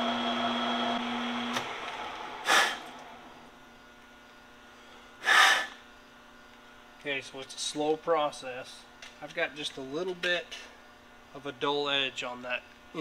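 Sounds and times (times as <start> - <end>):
metal lathe humming: 0.0 - 3.6
short hissing bursts: 2.4 - 2.8, 5.2 - 5.8.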